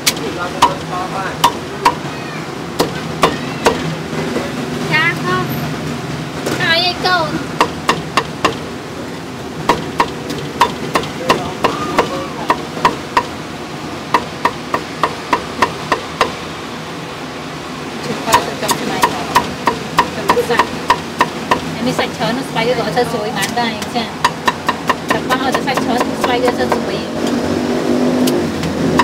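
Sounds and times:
cleaver chopping meat on wooden block: 1.4s - 2.0s, 7.6s - 8.6s, 9.7s - 13.4s, 14.2s - 16.4s, 24.2s - 26.9s.

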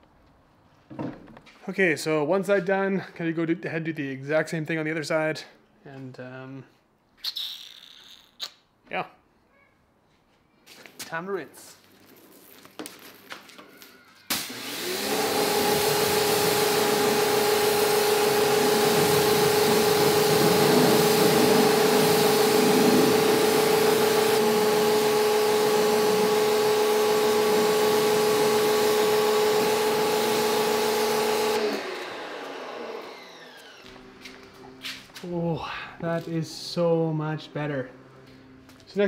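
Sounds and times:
pressure washer motor hum: 14.3s - 35.2s
hiss of water spray: 18.6s - 24.4s.

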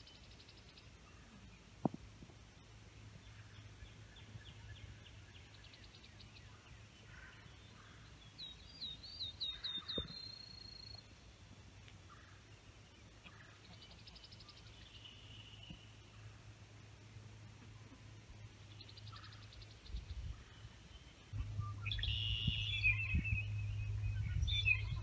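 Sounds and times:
faint songbird trills: 3.3s - 11.1s, 18.7s - 25.0s
bird phrase with held whistle: 21.6s - 23.5s.

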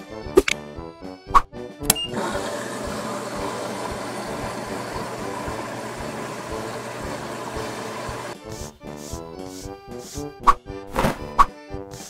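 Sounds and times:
washing machine running: 1.9s - 8.4s.

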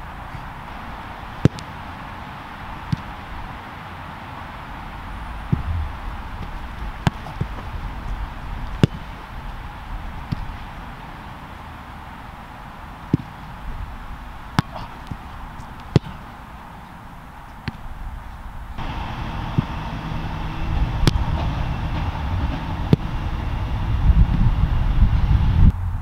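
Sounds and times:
outdoor hum: 0.0s - 26.0s
soccer ball kicked and bouncing: 2.8s - 3.2s, 5.5s - 11.4s, 13.0s - 13.6s, 14.5s - 16.4s, 17.5s - 17.9s, 19.5s - 19.8s.

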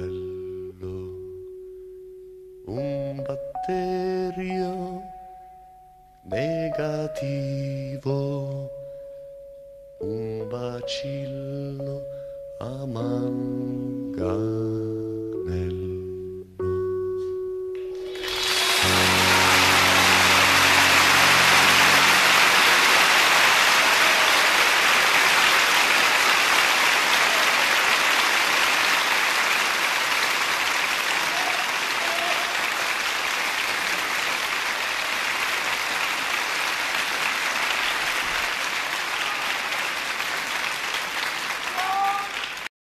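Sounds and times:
band chord ringing: 16.2s - 24.0s
audience applauding: 18.0s - 42.7s.

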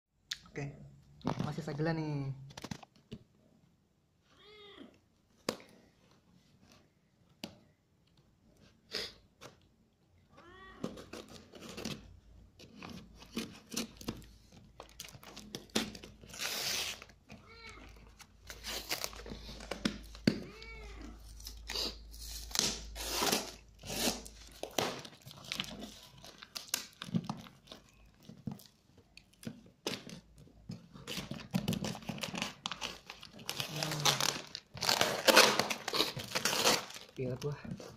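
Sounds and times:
tape ripping and plastic crinkling: 10.8s - 37.9s.

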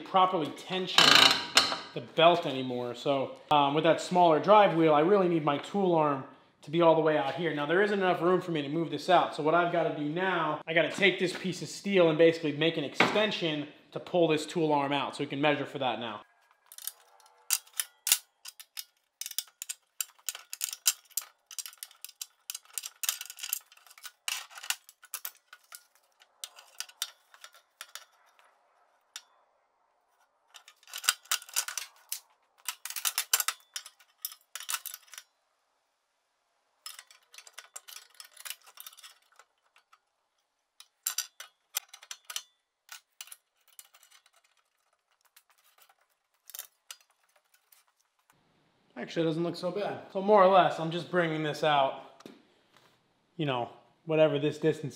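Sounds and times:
steel parts and tools clinking: 1.0s - 2.5s, 16.2s - 29.4s, 30.2s - 35.4s, 36.8s - 48.4s.

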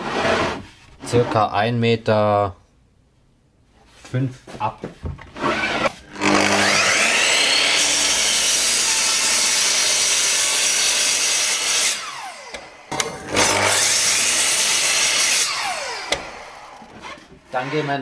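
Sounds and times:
mitre saw cutting wood: 5.4s - 18.0s.

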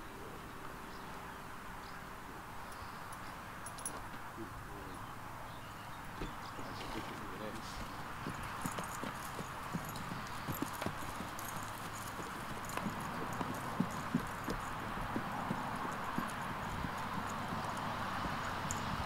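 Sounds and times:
horse hoofbeats on grass: 6.2s - 19.0s.

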